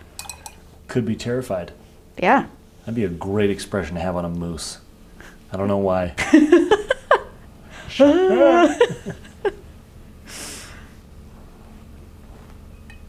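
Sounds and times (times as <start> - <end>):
woman laughing: 6.2 - 9.6.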